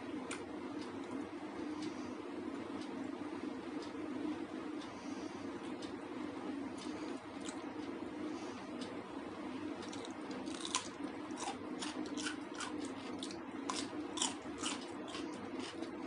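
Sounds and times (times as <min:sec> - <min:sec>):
steady low hum: 0:00.0 - 0:16.0
crisp chewing: 0:09.8 - 0:16.0.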